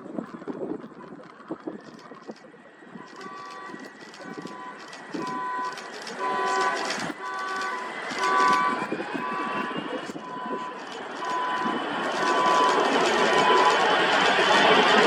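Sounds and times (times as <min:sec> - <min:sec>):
steady background noise: 0:00.0 - 0:15.0
horn-like beeping: 0:03.0 - 0:15.0.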